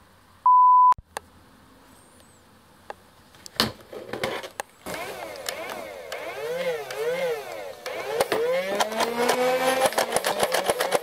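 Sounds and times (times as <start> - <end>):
plastic toy blaster clicks and knocks: 4.1 - 11.0.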